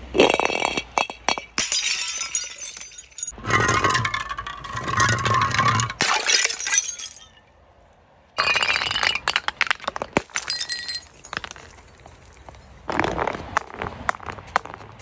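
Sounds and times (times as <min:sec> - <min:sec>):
bottle clattering down steps: 0:00.2 - 0:07.4, 0:08.4 - 0:14.8
glass bottle smashing: 0:00.2 - 0:07.4, 0:08.4 - 0:12.7.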